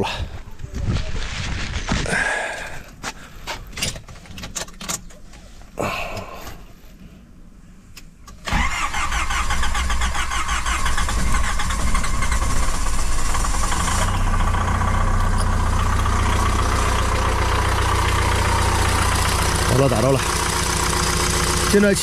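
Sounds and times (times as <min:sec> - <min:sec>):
car engine starting and idling: 0:07.9 - 0:22.0.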